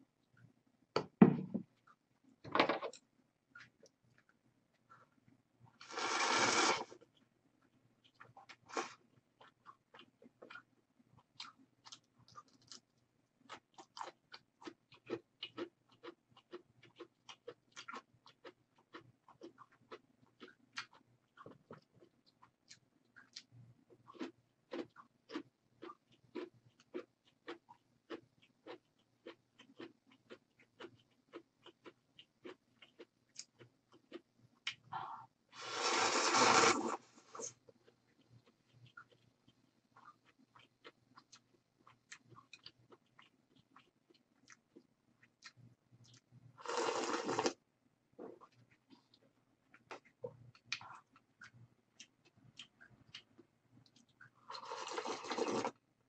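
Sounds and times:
faint chewing: 0:01.6 - 0:55.9
sipping broth: 0:35.6 - 0:37.5
wet mouth clicks: 0:49.8 - 0:53.3.

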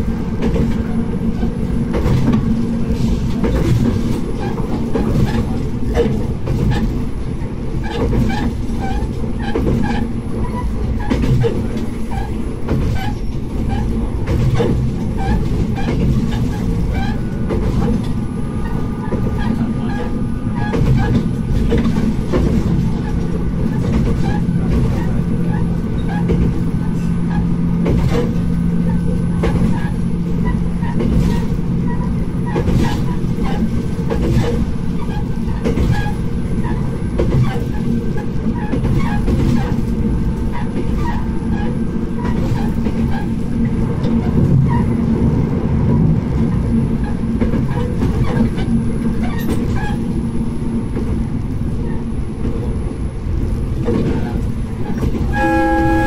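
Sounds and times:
railcar engine running: 0:00.0 - 0:56.0
wheels clicking on track: 0:00.0 - 0:56.0
steady hum: 0:55.3 - 0:56.0.

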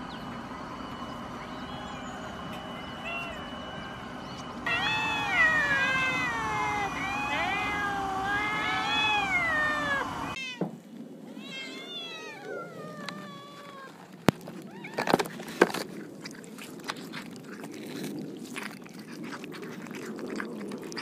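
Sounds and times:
cats meowing: 0:01.9 - 0:10.7, 0:11.3 - 0:15.4.

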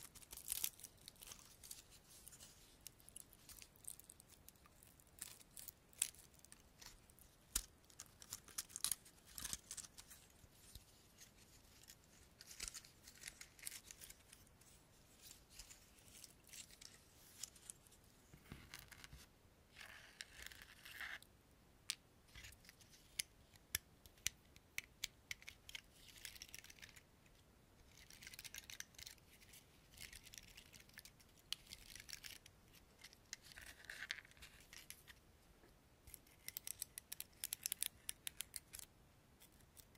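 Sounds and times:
pinecones crackling and scratching: 0:00.0 - 0:14.5, 0:36.1 - 0:38.9.

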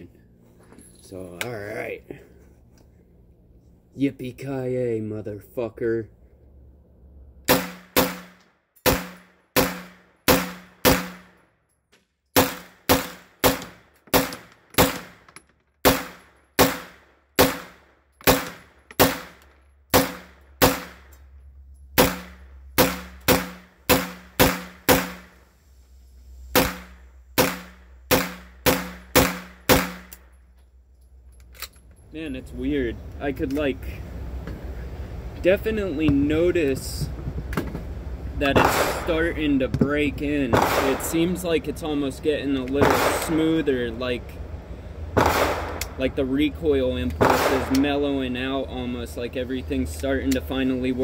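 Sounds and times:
pistol gunshots with echo: 0:07.5 - 0:11.4, 0:12.4 - 0:15.2, 0:15.8 - 0:21.1, 0:22.0 - 0:25.3, 0:26.6 - 0:30.1, 0:38.4 - 0:39.6, 0:40.4 - 0:41.4, 0:42.8 - 0:43.7, 0:45.2 - 0:46.0, 0:47.1 - 0:48.0.

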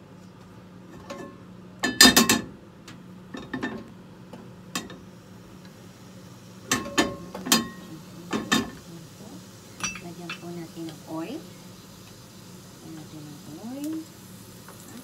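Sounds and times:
steady low hum: 0:00.0 - 0:15.0
utensils and dishes clinking: 0:06.7 - 0:08.8, 0:09.8 - 0:10.6.

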